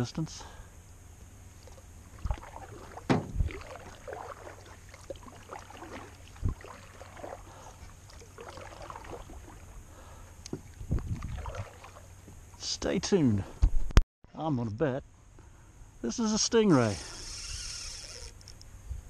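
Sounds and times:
paddle splashing through water: 0:01.6 - 0:12.3
sharp knocks: 0:03.1 - 0:03.4.

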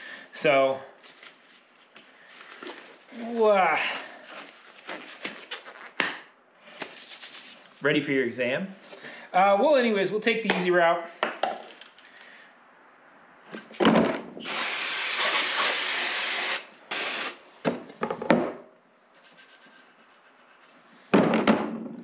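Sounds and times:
aerosol spray hissing: 0:14.4 - 0:17.4.

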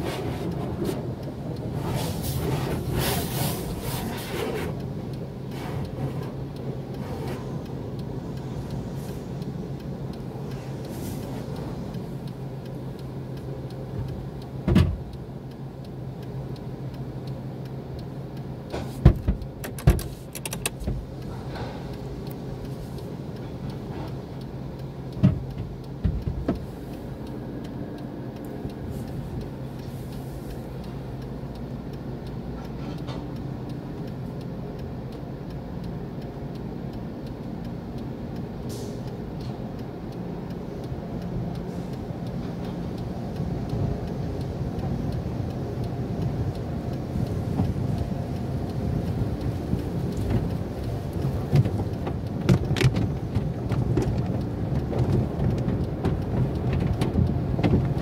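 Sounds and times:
water spraying on car: 0:00.0 - 0:07.7, 0:47.2 - 0:58.0
steady low hum: 0:00.0 - 0:58.0.

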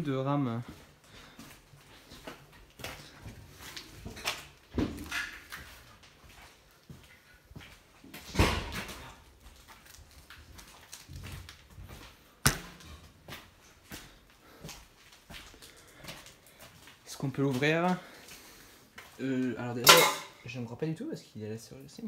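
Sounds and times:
footsteps: 0:09.4 - 0:19.2.

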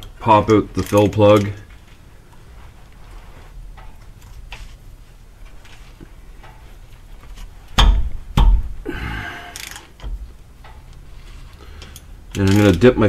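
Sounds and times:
sharp knocks: 0:07.8 - 0:08.8
ratchet rasping: 0:09.5 - 0:10.9.

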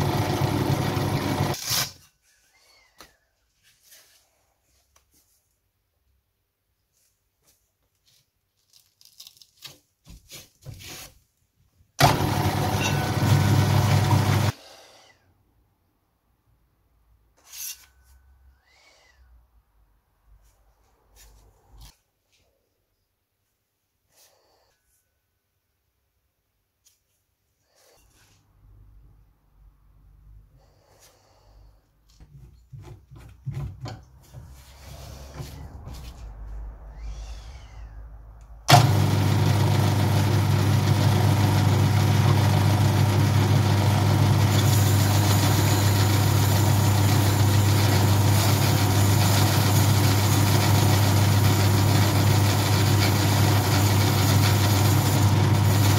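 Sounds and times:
drill press motor running: 0:00.0 - 0:01.6, 0:12.0 - 0:14.6, 0:38.7 - 0:55.9
sanding disc rustling: 0:44.5 - 0:55.9.

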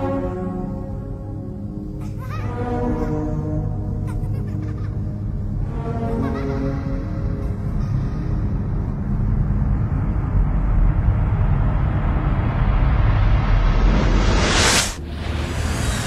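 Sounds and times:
deep cinematic rumble: 0:07.6 - 0:16.0
rising hissing whoosh: 0:11.7 - 0:16.0.

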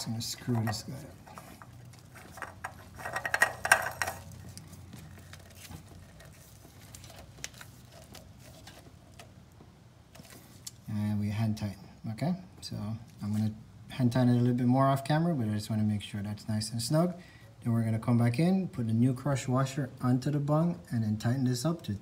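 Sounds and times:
oil filter clicks and scrapes: 0:00.1 - 0:09.4.

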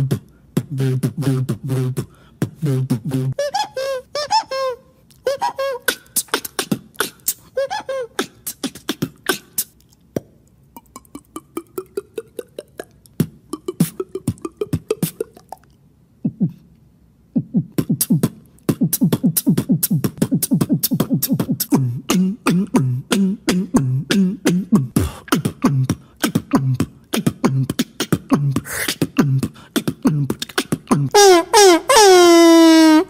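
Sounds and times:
beatboxing pops and clicks: 0:00.0 - 0:03.4, 0:05.8 - 0:07.5, 0:08.2 - 0:16.8, 0:17.4 - 0:31.2
short voiced tones: 0:30.9 - 0:33.0.

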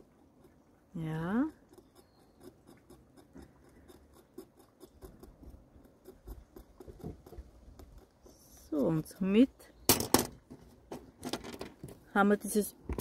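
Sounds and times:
scalpel scratching paper: 0:01.7 - 0:08.5.

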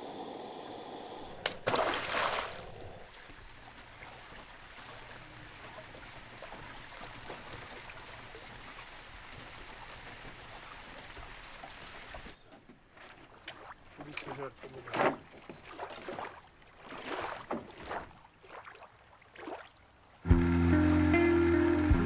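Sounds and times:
river water trickling: 0:01.2 - 0:22.0
short water splash: 0:01.4 - 0:02.8, 0:13.0 - 0:19.8.

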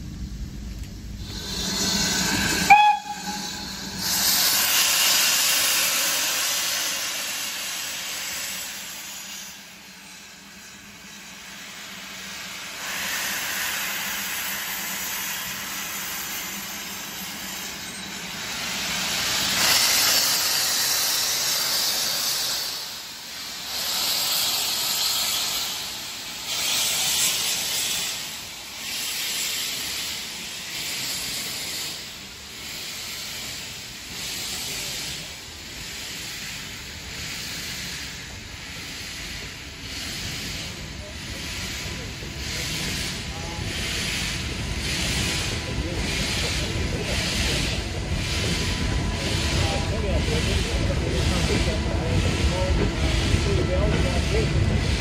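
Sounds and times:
steam hissing from locomotive: 0:01.1 - 0:55.0
steam locomotive whistle: 0:02.5 - 0:03.7.

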